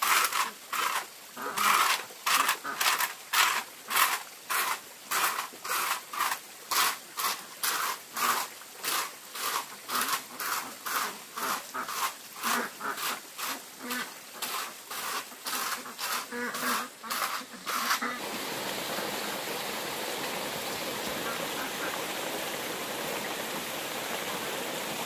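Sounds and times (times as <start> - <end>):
rake scraping wood chips: 0.0 - 18.3.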